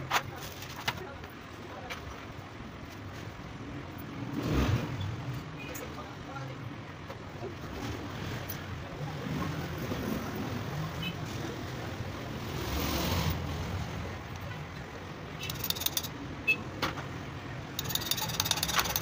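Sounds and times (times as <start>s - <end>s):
light metallic clicks and clinks: 15.4s - 16.2s, 17.8s - 19.0s.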